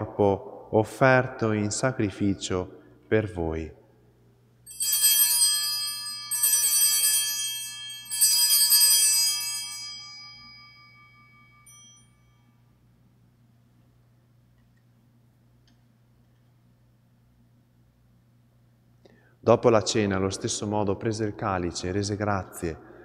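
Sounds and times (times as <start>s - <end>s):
altar bells ringing: 4.7s - 12.8s.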